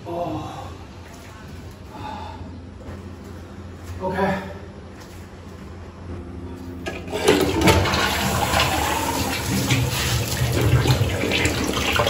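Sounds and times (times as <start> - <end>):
toilet flushing: 6.9 - 12.0.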